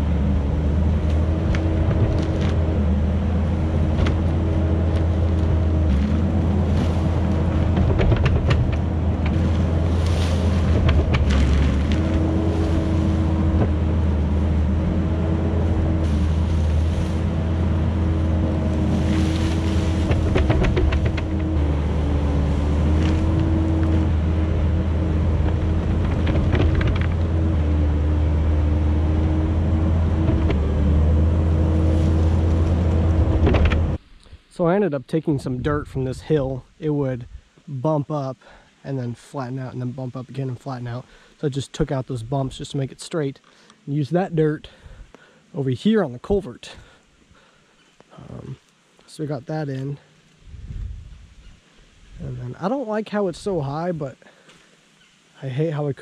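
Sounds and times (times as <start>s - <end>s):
diesel engine running under load: 0.0s - 34.0s
tracks and bucket clanking: 0.8s - 34.0s.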